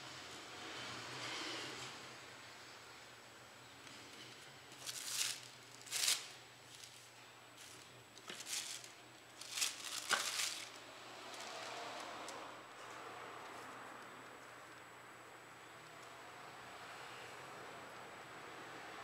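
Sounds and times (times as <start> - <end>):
paper napkins rustling: 4.7 - 12.0.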